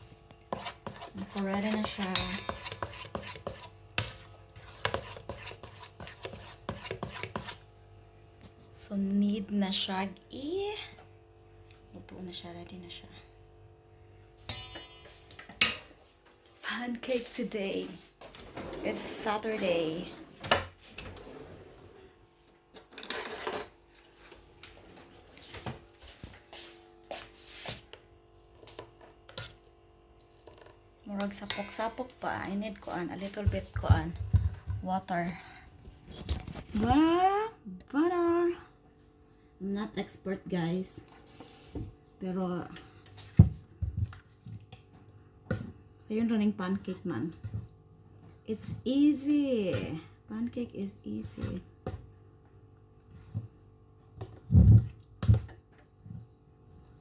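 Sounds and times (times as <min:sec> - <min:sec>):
batter being stirred: 0:00.0 - 0:07.8, 0:27.2 - 0:35.4, 0:53.0 - 0:57.0
utensil knocking against metal bowl: 0:00.8 - 0:04.1.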